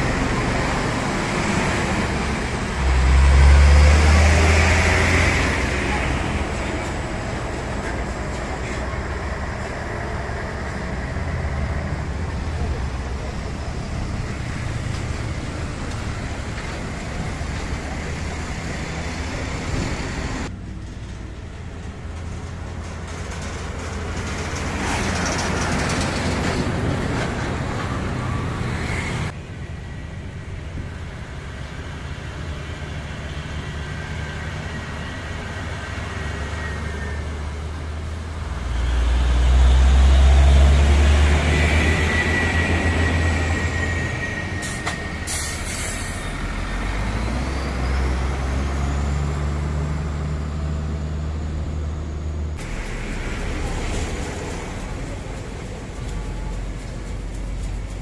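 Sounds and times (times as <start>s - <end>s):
diesel trucks passing: 0.0s - 58.0s
road noise: 0.0s - 58.0s
high steady squeal: 41.4s - 48.9s.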